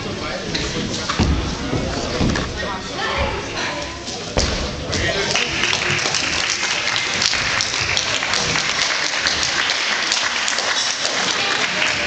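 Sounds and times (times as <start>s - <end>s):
spectators clapping: 5.2s - 12.0s.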